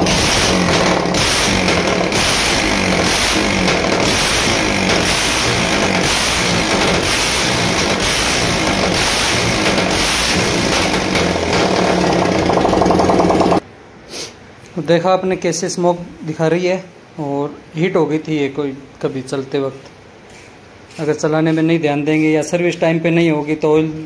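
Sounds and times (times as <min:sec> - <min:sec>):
motorcycle engine open exhaust: 0:00.0 - 0:13.6.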